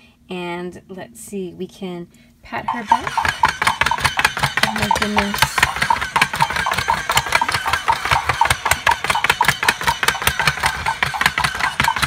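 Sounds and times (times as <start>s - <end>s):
rapid clip-clop clicks: 2.7s - 12.0s
small toy motor running: 2.7s - 12.0s.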